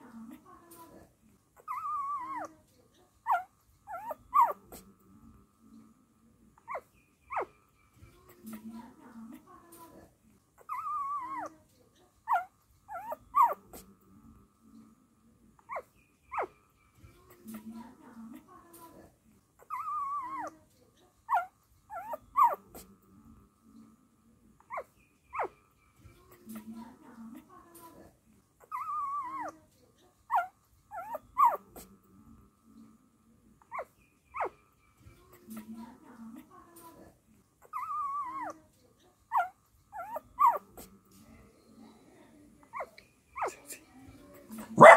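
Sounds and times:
puppy squeaking: 1.6 - 2.6, 3.2 - 4.8, 6.6 - 7.6, 10.6 - 11.6, 12.3 - 13.8, 15.7 - 16.6, 19.6 - 20.6, 21.3 - 22.8, 24.6 - 25.6, 28.6 - 29.6, 30.3 - 31.9, 33.6 - 34.6, 37.6 - 38.6, 39.3 - 40.9, 42.7 - 43.7
puppies whimpering: 39.3 - 40.7.

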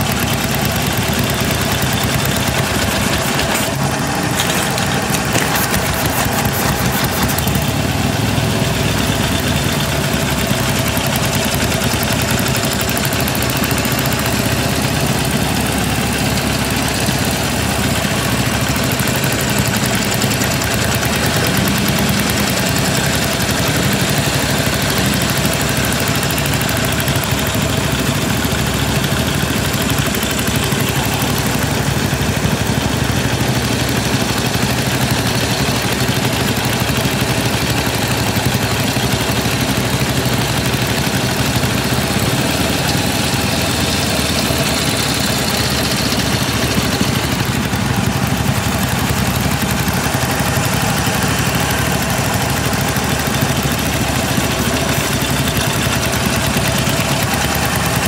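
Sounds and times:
motorcycle engine idling: 0.0 - 58.0.

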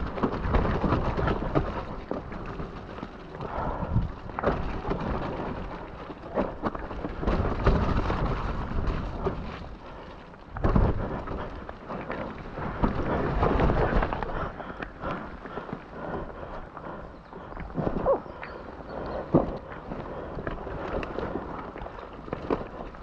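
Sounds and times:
wind and tyre rumble: 0.0 - 23.0.

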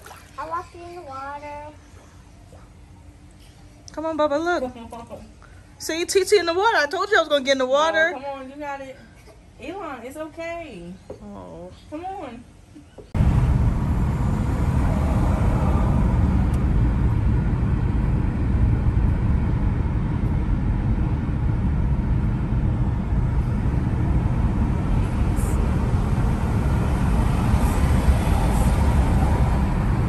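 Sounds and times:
car rumble while driving: 13.2 - 30.0.

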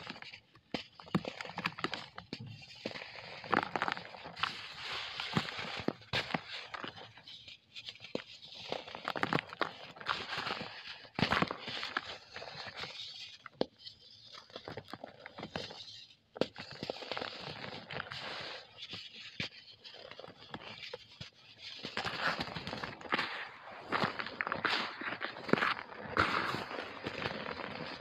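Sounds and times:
hands crushing cement lumps: 21.8 - 28.0
powder and crumbs falling: 22.0 - 28.0.

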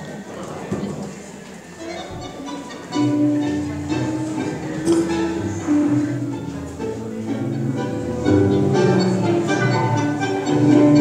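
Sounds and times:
acoustic guitars playing: 3.0 - 11.0.

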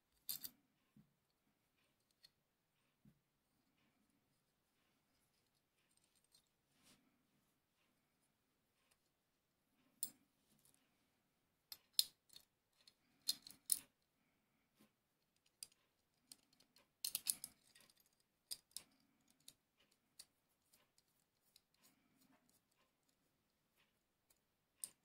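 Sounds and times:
soft handling rustle: 3.7 - 9.2
small steel parts clicking: 11.8 - 13.9, 15.4 - 21.8.

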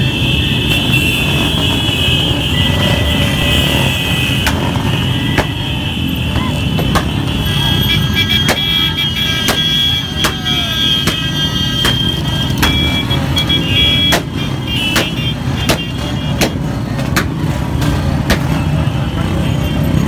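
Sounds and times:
motorcycle engines rumbling: 0.0 - 20.0
sharp rhythmic knocks: 8.4 - 8.8, 9.4 - 13.3, 14.0 - 17.4.

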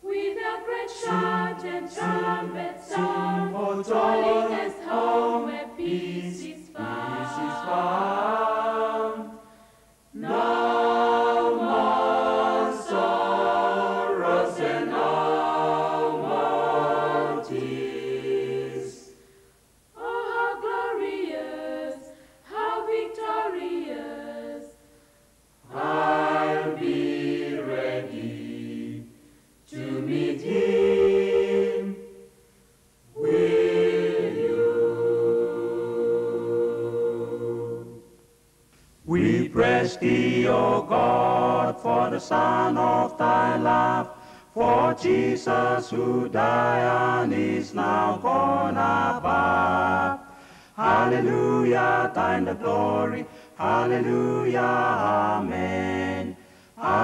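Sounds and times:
choir singing a hymn: 0.0 - 32.5, 33.1 - 38.2, 39.0 - 57.0.

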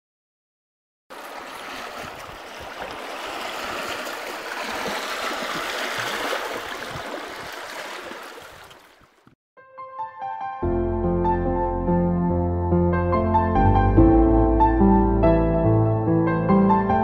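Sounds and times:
water running and splashing: 1.1 - 9.3.

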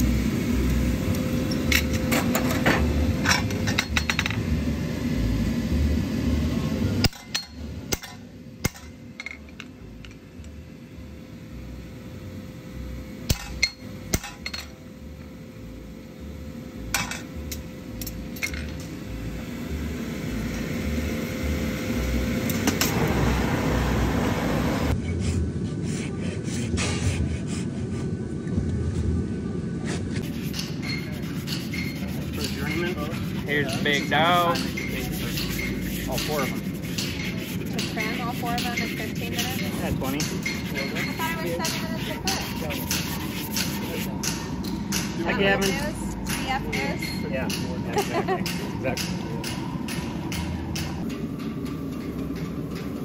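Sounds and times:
steady low hum: 0.0 - 53.0
hammers tapping metal tools: 33.8 - 52.9.

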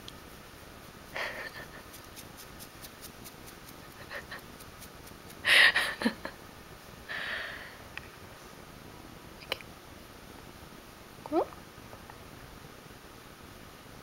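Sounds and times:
fingers scratching fur: 0.8 - 5.4.

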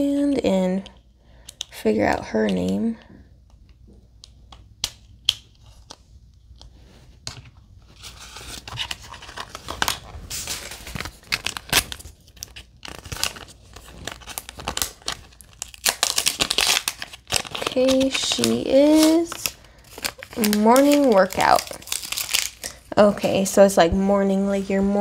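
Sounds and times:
paper and foil crinkling and tearing: 7.9 - 23.5.

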